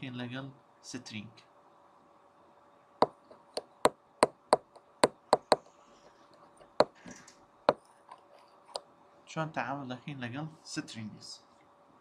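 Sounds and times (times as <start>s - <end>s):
pen tip tapping on tablet: 3.0s - 5.6s.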